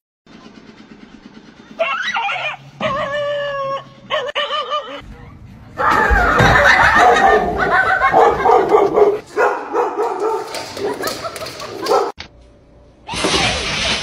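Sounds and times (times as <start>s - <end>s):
dog barking loudly: 6.8s - 11.2s, 11.8s - 12.2s.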